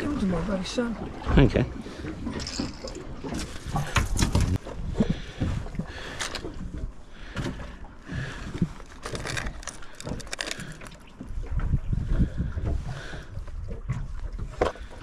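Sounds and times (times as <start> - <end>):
water slapping against boat: 0.0 - 15.0
wind rumbling on microphone: 8.2 - 15.0.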